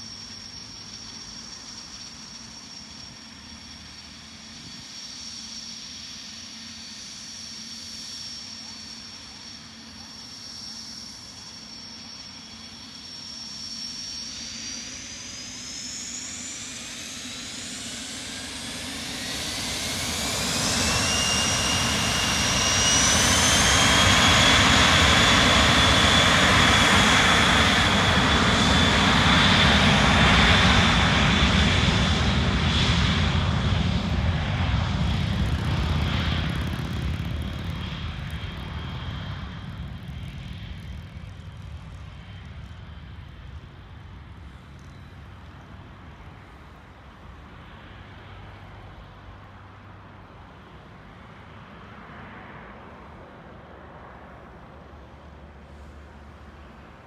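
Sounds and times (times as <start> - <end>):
jet engines whining: 0.0 - 49.4
jet roar: 10.4 - 46.6.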